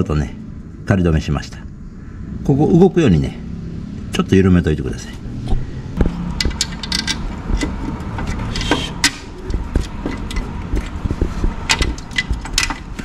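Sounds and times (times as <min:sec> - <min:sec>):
steady low rumble: 0:00.0 - 0:13.0
tools clicking on metal: 0:06.4 - 0:11.0, 0:11.7 - 0:13.0.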